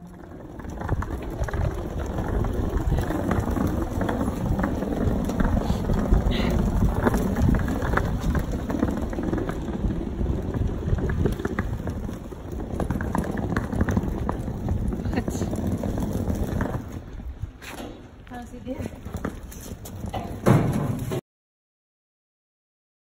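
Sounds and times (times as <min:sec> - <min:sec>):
rain: 0:00.0 - 0:17.4
wind buffeting microphone: 0:00.0 - 0:20.5
wheeled suitcase rumbling on bricks: 0:00.0 - 0:21.2.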